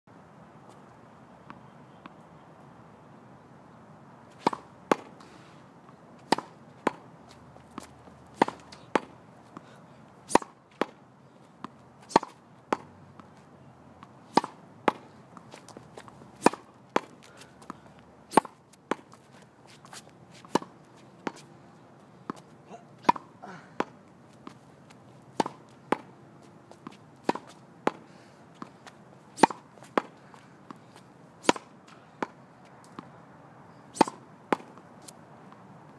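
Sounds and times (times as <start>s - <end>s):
racket striking tennis ball: 4.3s - 11.0s, 11.6s - 13.4s, 14.0s - 21.5s, 22.2s - 33.1s, 33.9s - 35.2s
ball bouncing on asphalt: 4.3s - 21.5s, 22.2s - 33.1s, 34.0s - 35.9s.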